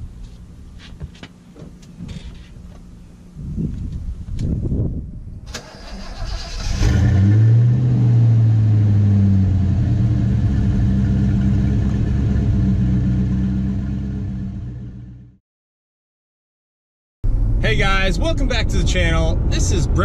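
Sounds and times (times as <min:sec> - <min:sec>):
starter cranking engine: 0:05.5 - 0:07.0
car engine revving: 0:06.0 - 0:15.3
car engine idling: 0:08.7 - 0:15.3.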